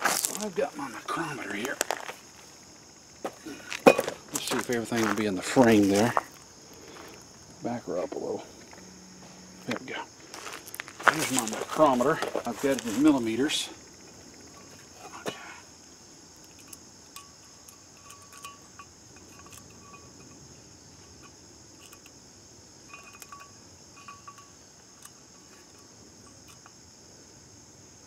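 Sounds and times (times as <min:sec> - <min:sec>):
insect chorus: 0:00.0 - 0:28.0
small metallic clicks and taps: 0:16.4 - 0:20.4, 0:21.0 - 0:22.2, 0:22.9 - 0:26.8.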